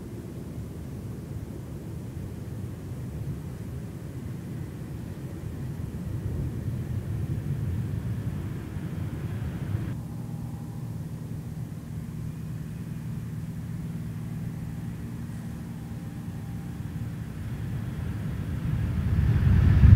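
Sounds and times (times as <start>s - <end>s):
jet engines rumbling: 0.0s - 19.9s
low steady tones: 0.0s - 19.9s.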